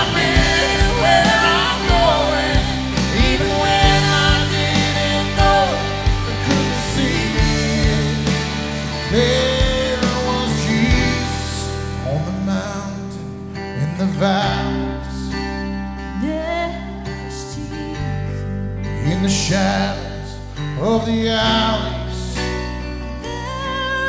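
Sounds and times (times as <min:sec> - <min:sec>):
sustained chords: 0:00.0 - 0:13.5
lead vocal singing: 0:00.0 - 0:15.4
acoustic guitar: 0:00.0 - 0:24.0
bass: 0:00.0 - 0:24.0.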